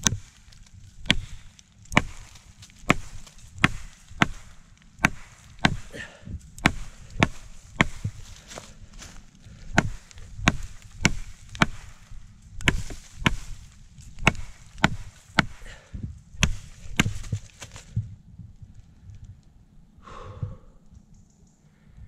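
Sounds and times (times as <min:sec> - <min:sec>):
machete chopping into wood: 0:01.0 - 0:08.7, 0:09.7 - 0:12.0, 0:12.6 - 0:15.8, 0:16.4 - 0:17.8.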